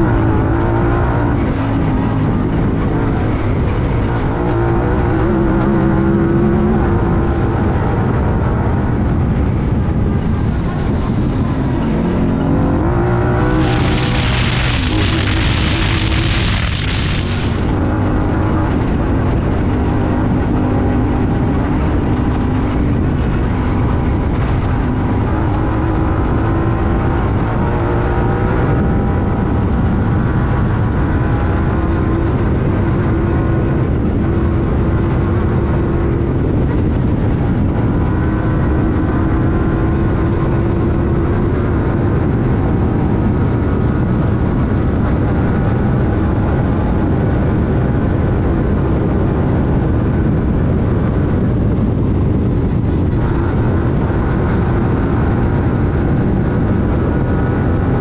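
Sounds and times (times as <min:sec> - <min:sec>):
rushing noise: 0:00.0 - 0:41.8
engine running hard: 0:00.0 - 0:58.0.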